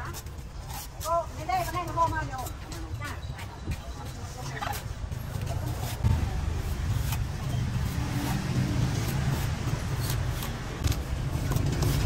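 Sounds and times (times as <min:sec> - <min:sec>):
cleaver chopping coconut husk: 0:04.7 - 0:12.0
steady low rumble: 0:04.9 - 0:12.0.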